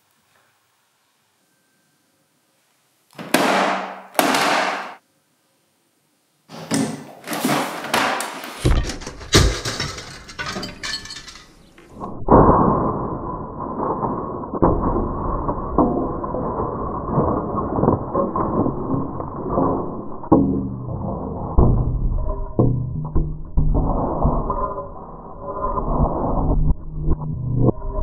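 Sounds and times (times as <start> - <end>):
printer smashing and breaking: 7.4 - 11.7.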